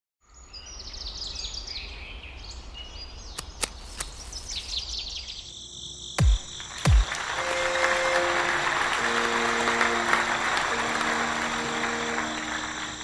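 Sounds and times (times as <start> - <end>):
songbirds chirping: 0.2 - 6.8.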